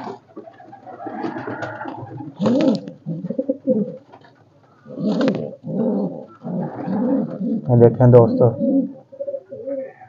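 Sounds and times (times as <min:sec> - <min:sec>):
pigeon cooing: 0:00.0 - 0:04.1, 0:04.7 - 0:10.0.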